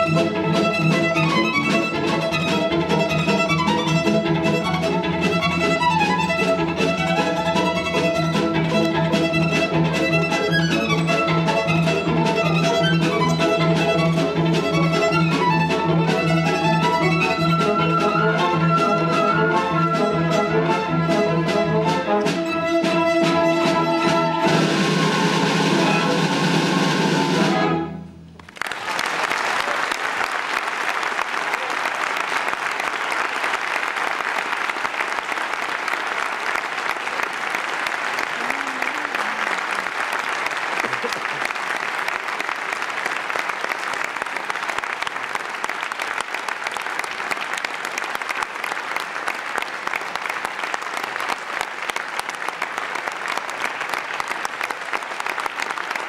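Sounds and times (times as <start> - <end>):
orchestra with solo violin: 0.0 - 28.0
audience applause: 28.4 - 56.0.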